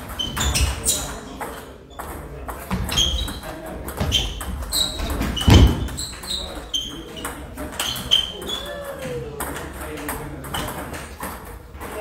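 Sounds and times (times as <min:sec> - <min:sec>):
table tennis ball hitting rackets: 0:00.0 - 0:08.4
ball bouncing on table: 0:00.3 - 0:08.0.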